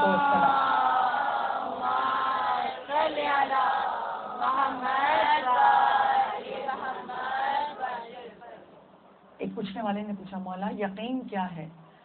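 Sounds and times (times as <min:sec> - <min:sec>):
women chanting together: 0:00.0 - 0:08.7.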